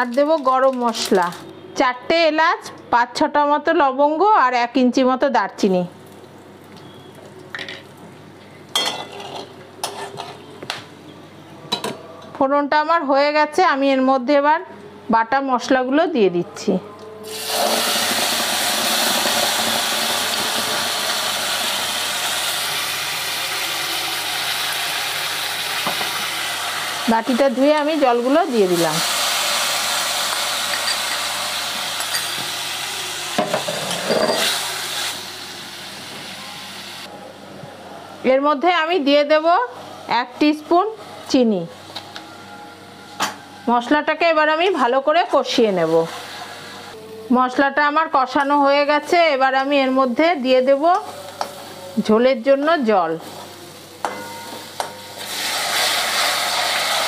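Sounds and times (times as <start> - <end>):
metal spatula scraping wok: 9.8 - 10.5
spices sizzling in hot oil: 17.3 - 37.1, 49.8 - 57.0
spice paste sizzling in oil: 54.7 - 57.0.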